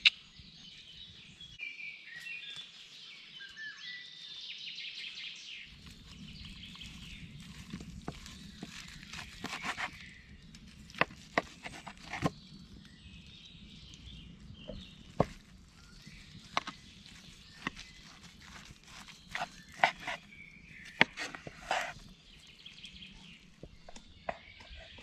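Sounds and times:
birds singing: 0.0 - 25.0
knife slicing meat: 8.2 - 10.0, 17.6 - 20.3.

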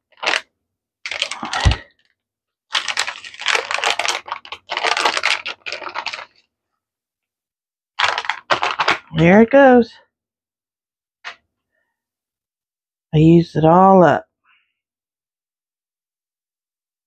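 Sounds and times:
plastic bag crinkling: 0.0 - 2.1, 2.7 - 6.5, 8.0 - 9.2.

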